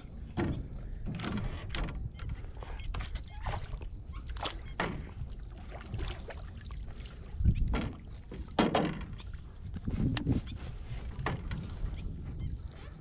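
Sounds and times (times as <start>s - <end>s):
fish splashing and knocking: 3.0s - 10.2s, 11.0s - 11.9s.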